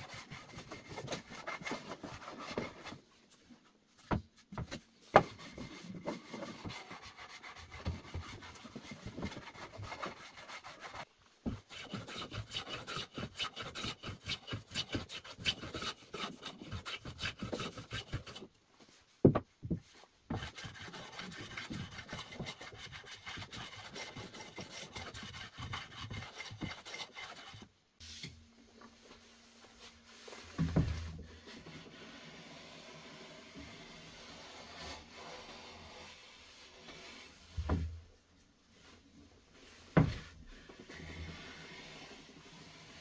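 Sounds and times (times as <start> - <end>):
hand plane shaving wood: 5.2 - 18.5, 20.3 - 27.7.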